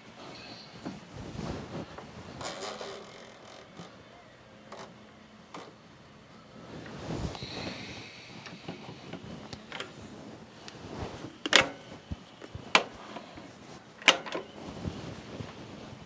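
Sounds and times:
tool handling noise: 0:11.0 - 0:16.0.

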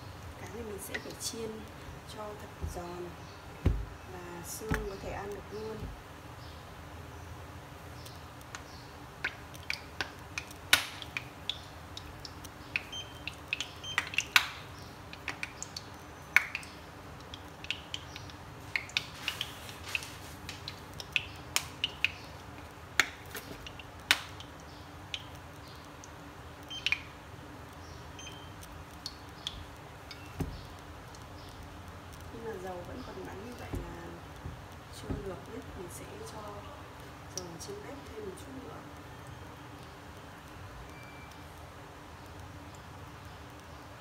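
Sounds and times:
dull knock: 0:03.6 - 0:04.0, 0:30.4 - 0:30.7, 0:33.7 - 0:35.3
oil crackling and popping: 0:08.0 - 0:38.5.

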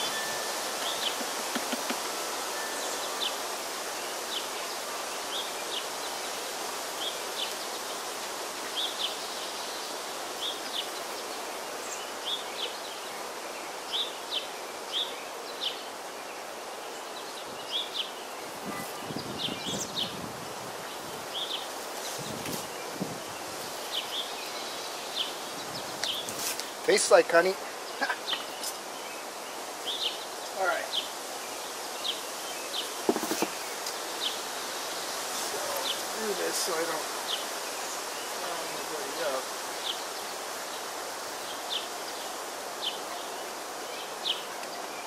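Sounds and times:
honey bees buzzing: 0:00.0 - 0:09.2.

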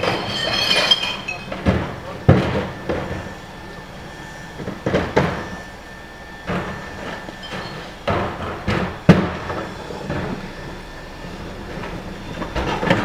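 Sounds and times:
plastic carts banging against truck hopper: 0:00.0 - 0:03.4, 0:04.6 - 0:05.6, 0:06.5 - 0:10.4, 0:11.7 - 0:13.0
recyclables clattering: 0:00.0 - 0:05.7
truck engine idling: 0:00.9 - 0:13.0.

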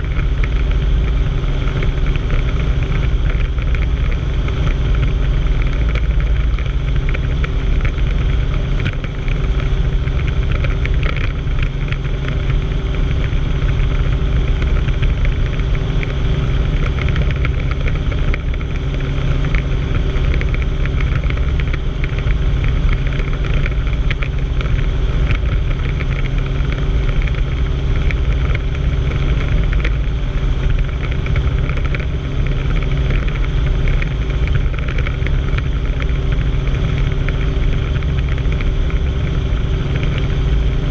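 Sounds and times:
helicopter engine and rotor drone: 0:00.0 - 0:40.9.

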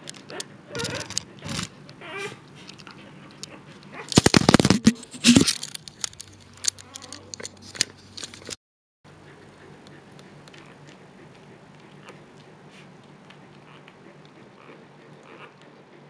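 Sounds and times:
scattered clicks: 0:02.7 - 0:08.6.

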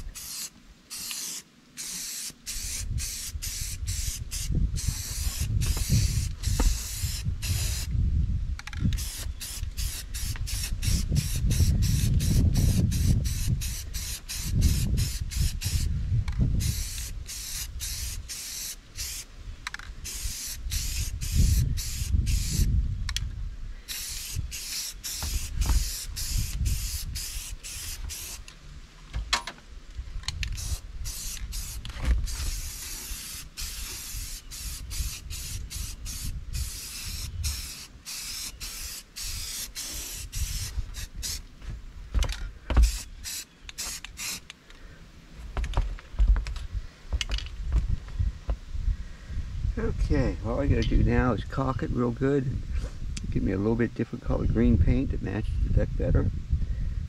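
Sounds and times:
spray paint can hissing: 0:00.0 - 0:07.9, 0:08.9 - 0:15.9, 0:16.6 - 0:19.3, 0:20.0 - 0:22.7, 0:23.9 - 0:28.5, 0:30.4 - 0:41.4, 0:42.7 - 0:44.6.

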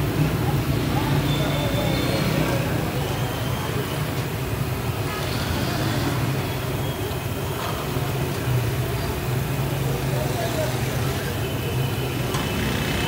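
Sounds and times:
low rumble of traffic: 0:00.0 - 0:13.0.

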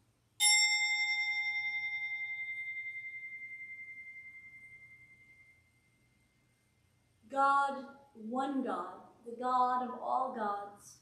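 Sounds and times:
hand-held prayer bell ringing: 0:00.4 - 0:05.9.

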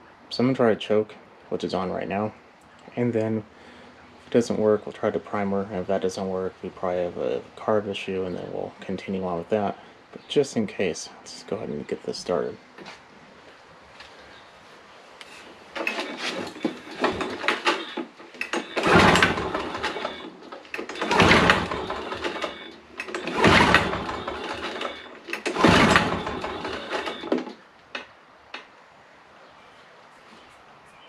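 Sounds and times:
engine recoil starter pulls: 0:15.7 - 0:28.1.

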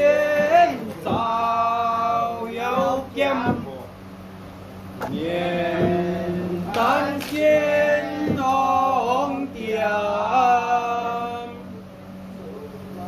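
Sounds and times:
steady low hum: 0:00.0 - 0:13.0
sharp knocks: 0:00.3 - 0:01.4, 0:02.7 - 0:03.8, 0:05.0 - 0:06.1, 0:08.2 - 0:08.6.

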